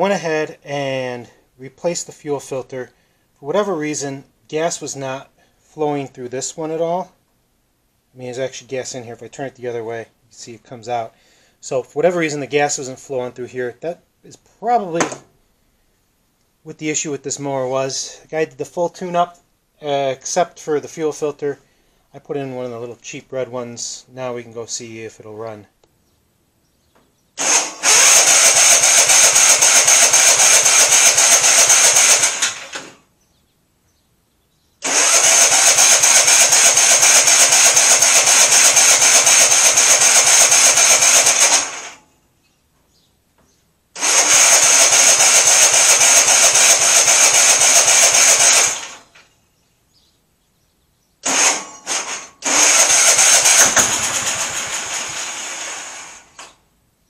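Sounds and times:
lawn tractor engine cranking: 27.4 - 33.0, 34.8 - 42.0, 44.0 - 49.3, 51.2 - 56.6.

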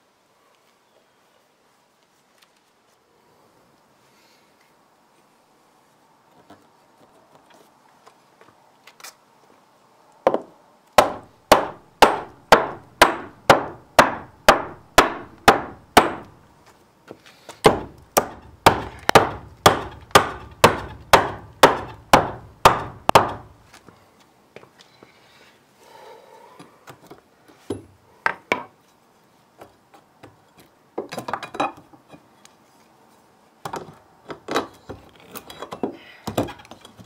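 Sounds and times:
hammer striking wooden block: 11.0 - 16.3, 17.6 - 23.5.

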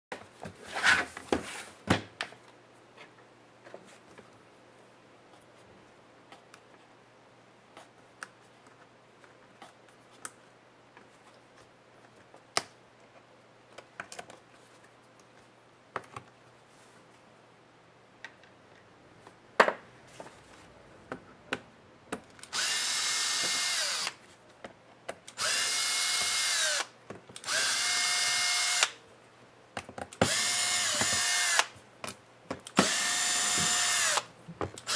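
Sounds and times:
cordless drill motor whining: 22.5 - 24.2, 25.4 - 29.0, 30.2 - 31.7, 32.8 - 34.9.

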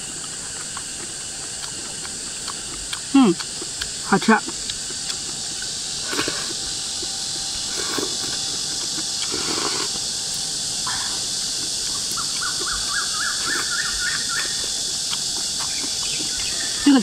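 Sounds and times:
insects hissing: 0.0 - 17.0
sipping and chewing: 0.0 - 17.0
bird chirping: 12.1 - 14.7, 15.6 - 17.0.

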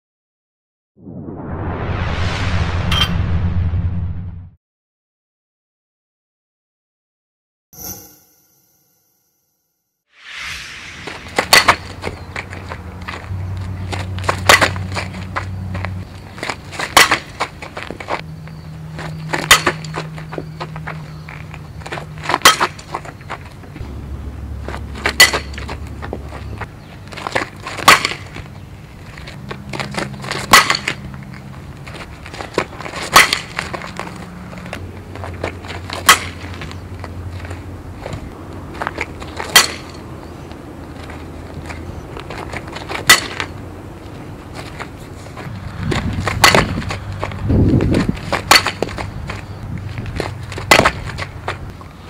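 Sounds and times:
bat hitting ball: 11.1 - 12.2, 22.3 - 22.8, 25.0 - 25.8, 27.8 - 28.4, 33.0 - 33.6, 36.0 - 36.5, 39.4 - 40.0, 46.3 - 46.8, 48.4 - 48.9, 50.6 - 51.0
bat cracking against ball: 11.3 - 12.6, 14.2 - 15.0, 16.4 - 18.0, 19.4 - 20.1, 22.2 - 23.0, 25.0 - 25.8, 27.2 - 28.5, 29.8 - 31.1, 32.6 - 34.0, 35.8 - 36.7, 39.0 - 40.0, 42.8 - 43.5, 46.2 - 47.0, 48.3 - 49.0, 50.2 - 51.6.

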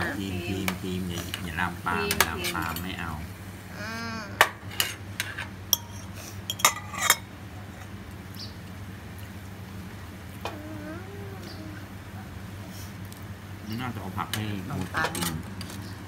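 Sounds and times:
metal utensil clinking on pan: 4.8 - 7.2.

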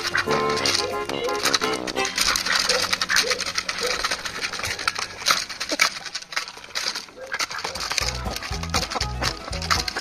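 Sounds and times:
bills pecking grain: 0.0 - 10.0
poultry calls: 0.0 - 10.0.

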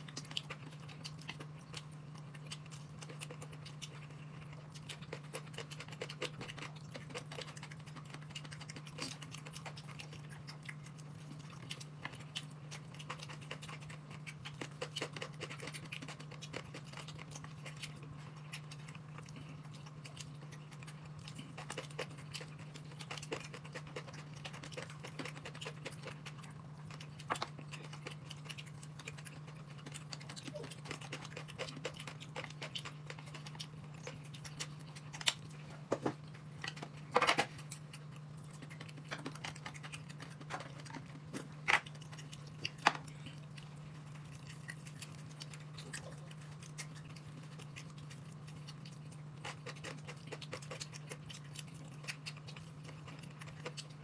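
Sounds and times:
people chewing: 0.0 - 54.0
steady low hum: 0.0 - 54.0.

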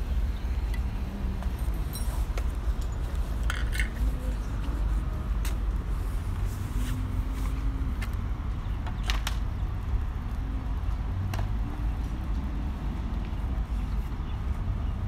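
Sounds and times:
low outdoor rumble: 0.0 - 15.0
metallic clink: 1.6 - 4.0.

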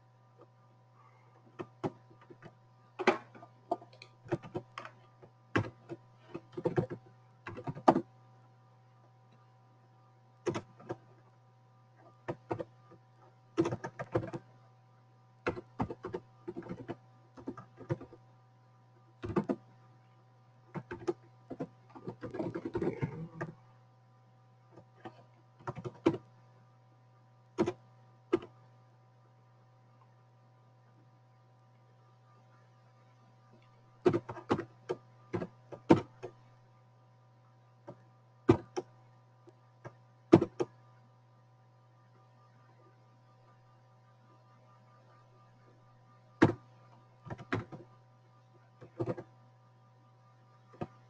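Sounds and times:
steady low hum: 0.0 - 51.0
computer keyboard typing: 1.6 - 8.1, 10.4 - 11.0, 12.2 - 13.0, 13.6 - 14.5, 15.4 - 18.2, 19.2 - 19.7, 20.7 - 23.6, 24.8 - 26.3, 27.6 - 28.6, 34.0 - 36.4, 40.3 - 40.8, 46.4 - 47.9, 48.8 - 49.4.

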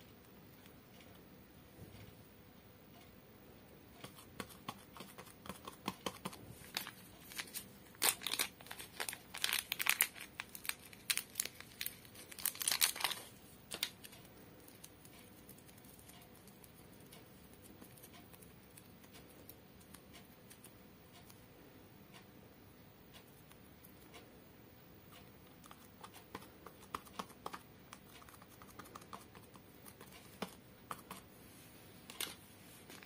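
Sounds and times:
modelling clay crackling: 4.3 - 20.8.

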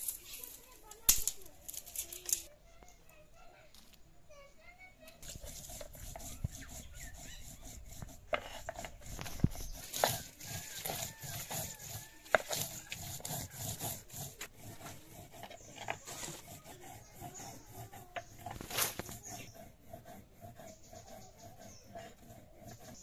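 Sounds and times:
stone scraping on stone: 5.2 - 23.0.

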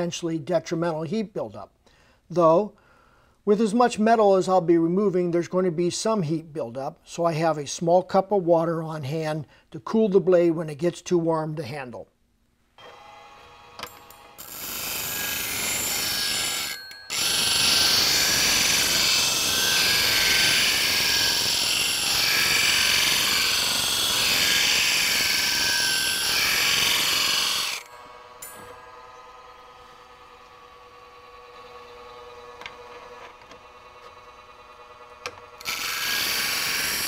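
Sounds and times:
bench grinder motor running: 12.8 - 37.0
steel grinding on wheel: 14.4 - 30.4.

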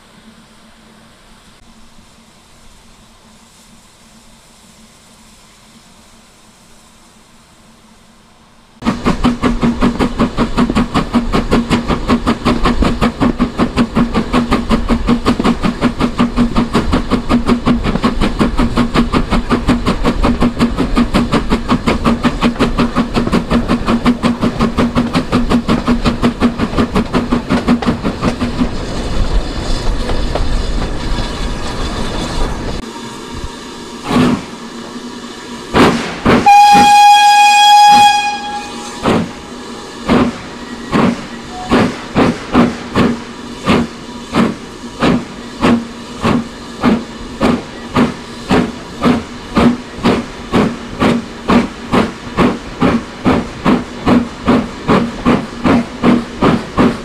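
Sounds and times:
locomotive running with rapid beat: 8.8 - 31.8, 40.1 - 57.0.

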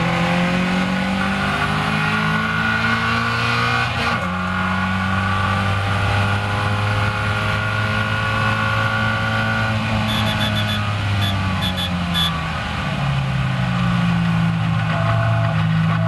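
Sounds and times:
race car engine accelerating: 0.0 - 12.5.

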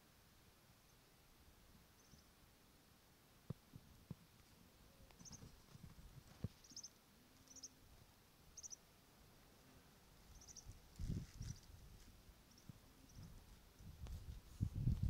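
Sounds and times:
small animal chirping: 5.1 - 5.5, 6.6 - 7.8, 8.6 - 8.8, 10.3 - 10.8.

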